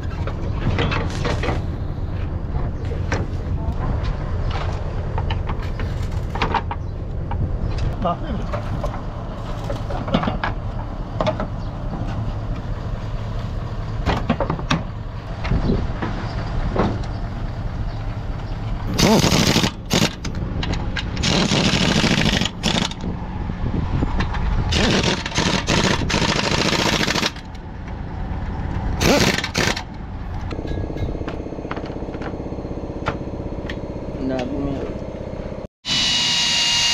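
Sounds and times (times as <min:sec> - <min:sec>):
pneumatic impact wrench: 0:18.9 - 0:20.4, 0:21.2 - 0:23.0, 0:24.7 - 0:27.5, 0:29.0 - 0:29.9, 0:35.9 - 0:36.9
steady low hum: 0:27.5 - 0:35.7.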